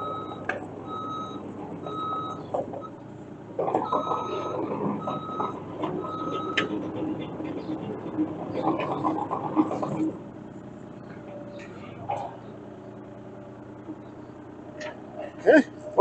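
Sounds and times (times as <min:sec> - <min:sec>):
excavator travel alarm beeping: 0:00.0 - 0:03.1, 0:03.7 - 0:07.4
diesel engine running: 0:00.0 - 0:16.0
track clanks: 0:00.0 - 0:16.0.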